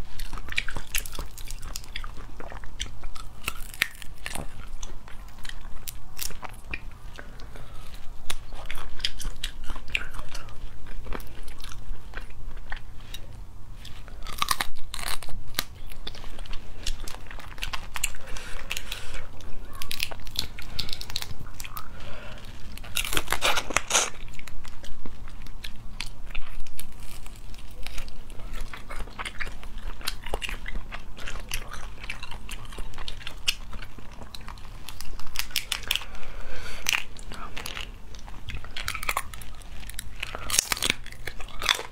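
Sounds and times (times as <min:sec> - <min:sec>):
close-up chewing: 0:00.0 - 0:41.9.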